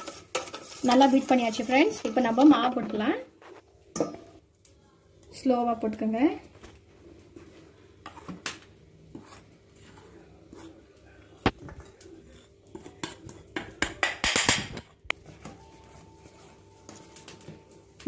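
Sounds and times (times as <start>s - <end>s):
whisk scraping a steel bowl: 0.0s - 3.0s, 8.0s - 8.4s, 9.0s - 13.8s, 15.2s - 17.4s.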